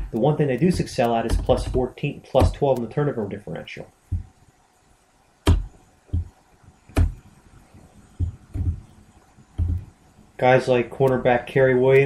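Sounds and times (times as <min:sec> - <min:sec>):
low thumps: 0:00.0 - 0:02.8, 0:04.1 - 0:04.4, 0:05.4 - 0:10.1
sharp clicks: 0:00.0 - 0:02.9, 0:11.0 - 0:11.3.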